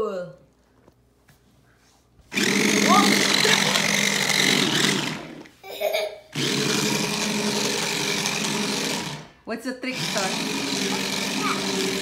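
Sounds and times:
small electric motors whirring: 2.3s - 5.5s, 6.3s - 9.3s, 9.9s - 12.0s.

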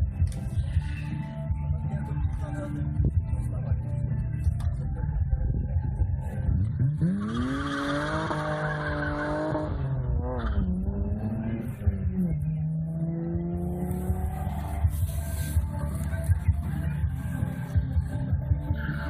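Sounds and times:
car engine revving: 6.2s - 19.0s.

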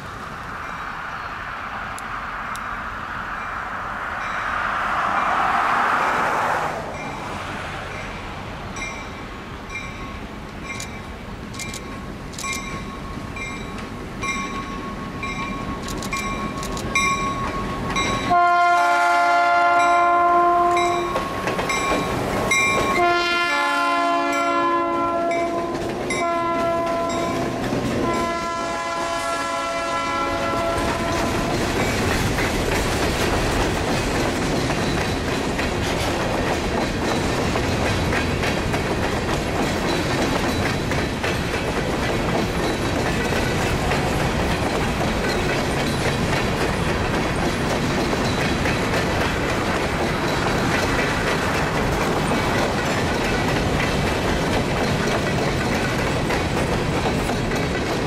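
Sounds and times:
train wheels clacking on rail joints: 9.7s - 23.5s, 24.2s - 58.0s
locomotive air horn: 18.2s - 21.3s, 22.9s - 31.5s.

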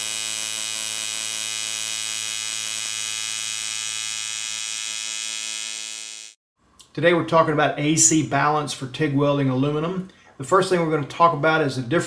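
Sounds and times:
welding arc electric buzz: 0.0s - 6.4s.

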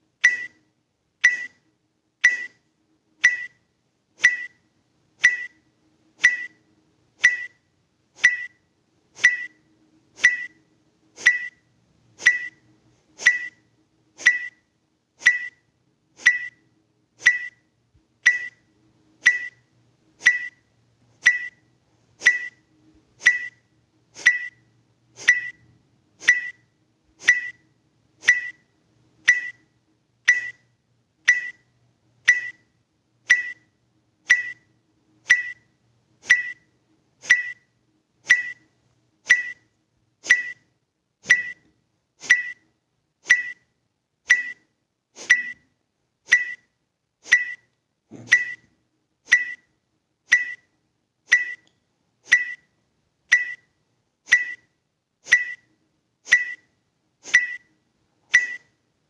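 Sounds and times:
electronic timer beeps: 0.2s - 4.6s, 5.2s - 29.7s, 30.3s - 30.7s, 31.3s - 31.7s, 32.3s - 43.7s, 44.3s - 45.7s, 46.3s - 51.7s, 52.3s - 58.8s.

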